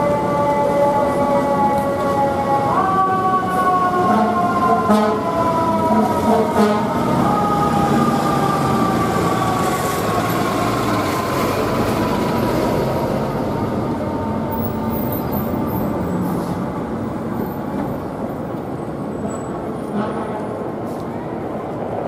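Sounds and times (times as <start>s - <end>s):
fire engine siren: 0.0s - 16.5s
fire truck engine rumble: 0.0s - 21.8s
street traffic: 0.0s - 22.0s.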